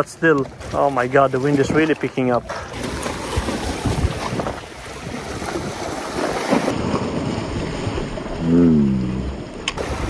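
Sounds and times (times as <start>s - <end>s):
wind buffeting microphone: 0.0s - 8.0s
waves lapping against rocks: 0.0s - 8.4s.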